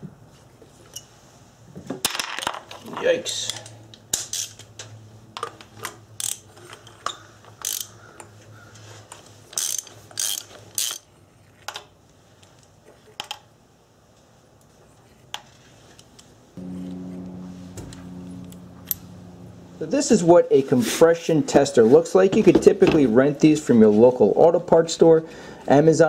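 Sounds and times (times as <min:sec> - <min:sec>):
socket ratchet clicking: 0:07.6 - 0:07.9, 0:09.6 - 0:11.0.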